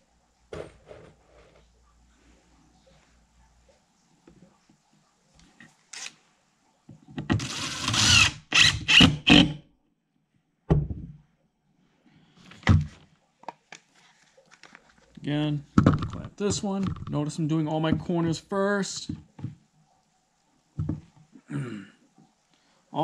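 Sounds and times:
cordless drill driving screw: 0:07.4 - 0:09.6.

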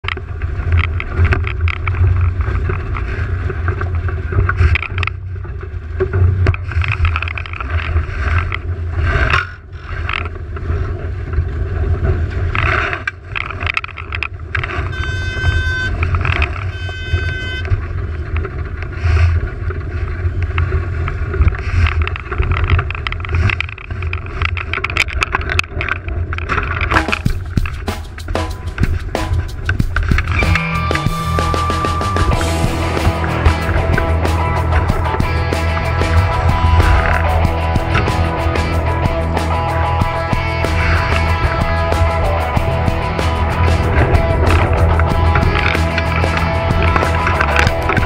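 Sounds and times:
water splashing along hull: 0:00.1 - 0:48.0
short high-pitched tones: 0:14.9 - 0:16.0, 0:16.7 - 0:17.7
wind buffeting microphone: 0:26.8 - 0:48.0.

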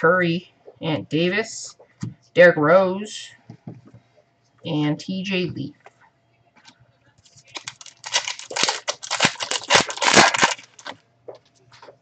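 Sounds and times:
wrapper crinkling and tearing: 0:07.2 - 0:11.0.

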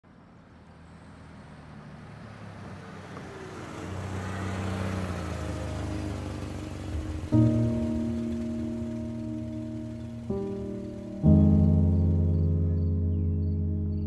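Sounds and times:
car driving past: 0:00.1 - 0:13.6.

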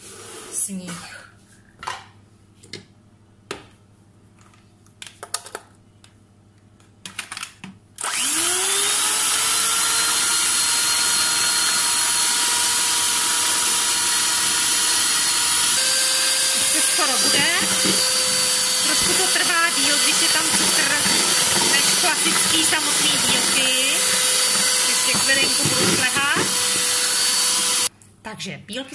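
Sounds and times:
electric hand mixer whine: 0:08.0 - 0:27.9.

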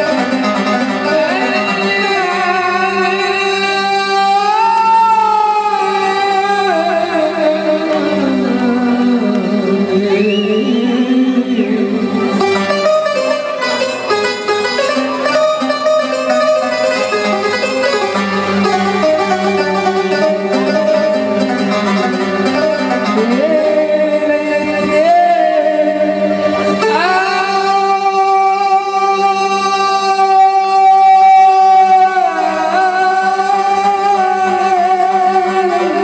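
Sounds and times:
man singing into a microphone: 0:00.0 - 0:13.7, 0:22.2 - 0:36.0
plucked string accompaniment: 0:00.0 - 0:36.0.

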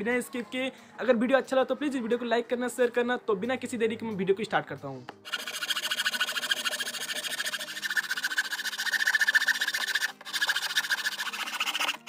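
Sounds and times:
hacksaw cutting plywood: 0:05.3 - 0:12.0.

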